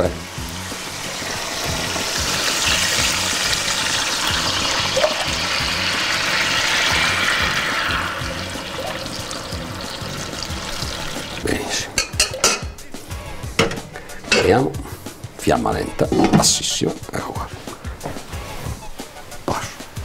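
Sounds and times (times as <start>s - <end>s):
liquid hissing in hot pan: 0.0s - 11.9s.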